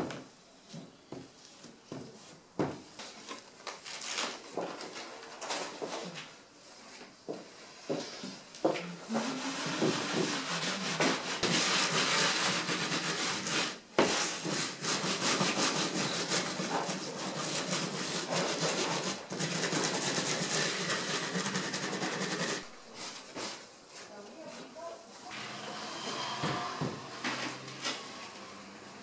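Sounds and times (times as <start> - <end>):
bristle brush scrubbing glass: 9.0 - 22.7.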